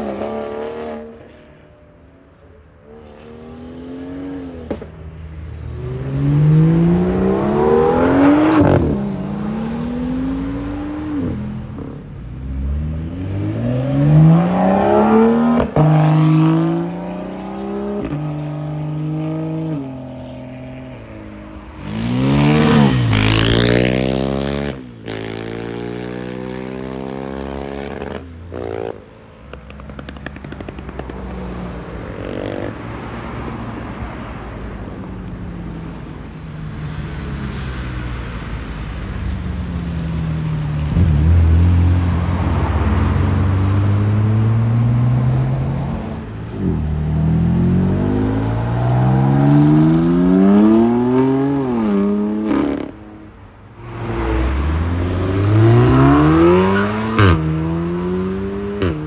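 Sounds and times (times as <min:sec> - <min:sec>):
sports cars accelerating hard: 0:05.6 - 0:21.0, 0:40.5 - 0:53.2, 0:53.8 - 0:59.0.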